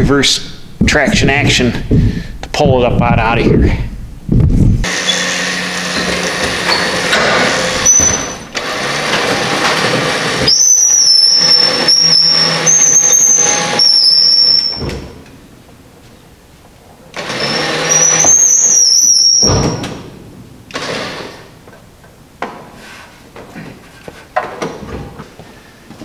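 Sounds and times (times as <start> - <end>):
high wavering squeal: 10.5 - 14.8, 17.4 - 19.9.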